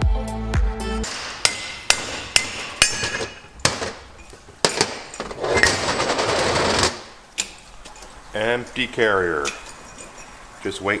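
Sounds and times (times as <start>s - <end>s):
rapid metallic rattling: 1.0s - 7.2s.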